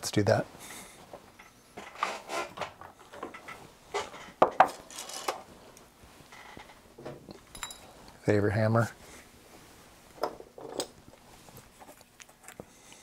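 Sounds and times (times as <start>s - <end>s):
metal tools clinking on workbench: 4.2s - 5.4s, 7.3s - 8.0s.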